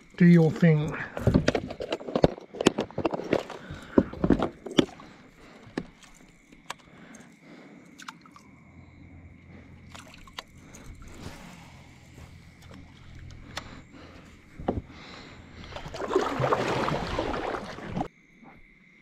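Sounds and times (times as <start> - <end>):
paddle sloshing through water: 14.0 - 18.1.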